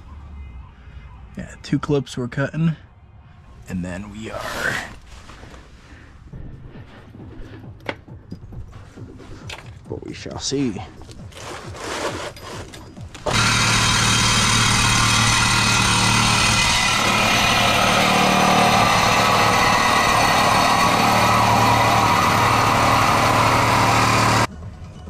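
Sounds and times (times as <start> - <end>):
angle grinder cutting steel pipe: 13.3 - 24.5.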